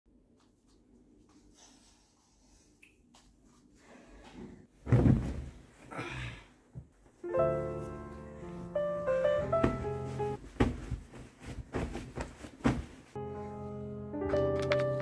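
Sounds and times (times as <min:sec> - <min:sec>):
piano music: 0:07.2 - 0:10.5, 0:13.2 - 0:15.0.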